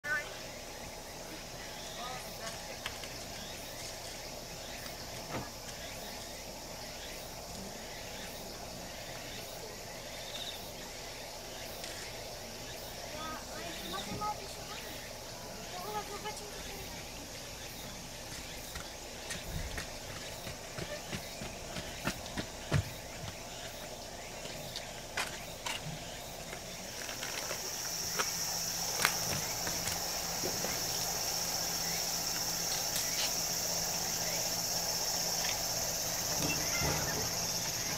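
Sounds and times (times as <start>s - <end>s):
insects hissing: 0.0s - 37.9s.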